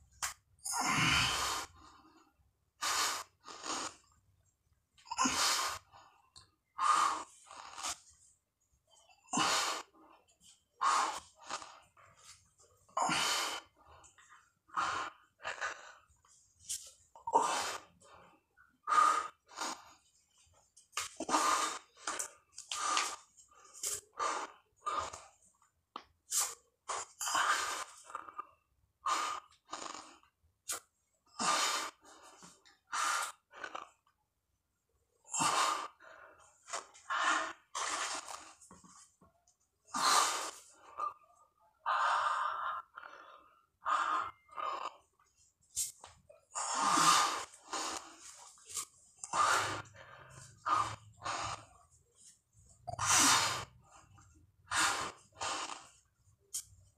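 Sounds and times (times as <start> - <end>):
man breathing hard: 46.6 - 51.8.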